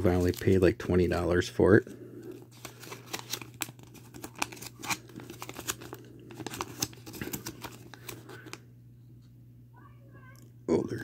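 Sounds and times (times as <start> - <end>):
paper rustling and crinkling: 0.0 - 0.6, 2.3 - 8.6
steady low hum: 0.0 - 11.0.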